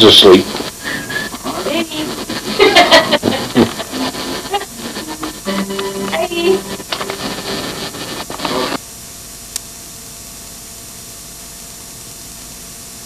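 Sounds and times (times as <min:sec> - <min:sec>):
camcorder room sound: 0:00.0 - 0:08.8
videotape hiss: 0:00.0 - 0:13.0.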